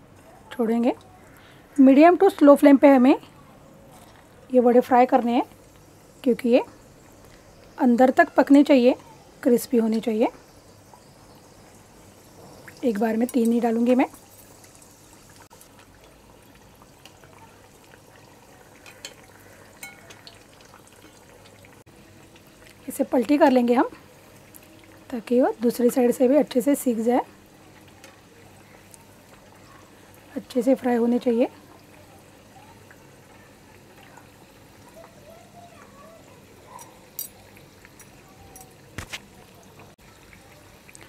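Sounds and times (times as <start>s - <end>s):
oil sizzling with crackles: 0.0s - 41.0s
spoon moving through oil: 18.8s - 21.4s.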